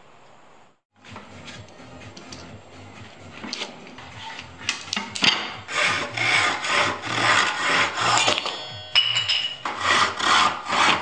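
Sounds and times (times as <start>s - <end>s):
hand saw cutting wood: 3.5s - 8.4s, 9.6s - 11.0s.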